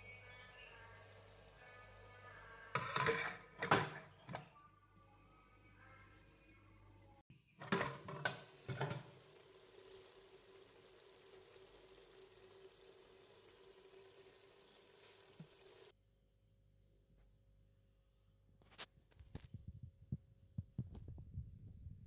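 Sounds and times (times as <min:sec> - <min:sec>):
sauce simmering hiss: 0:08.5 - 0:15.9.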